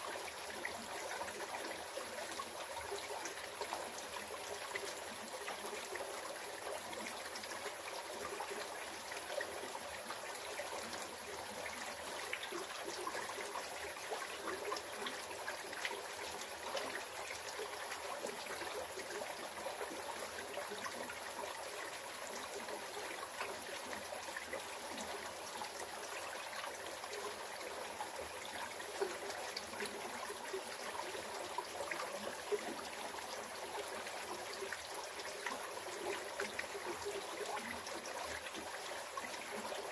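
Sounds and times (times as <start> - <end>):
creek babbling and trickling: 0.0 - 39.9.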